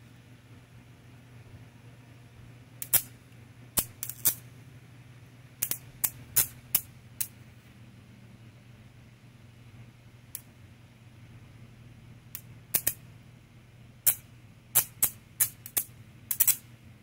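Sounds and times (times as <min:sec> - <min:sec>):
steady low hum: 0:00.0 - 0:17.0
bug zapper crackling zaps: 0:02.8 - 0:03.1, 0:03.8 - 0:04.4, 0:05.6 - 0:06.9, 0:12.7 - 0:13.0, 0:14.0 - 0:16.7.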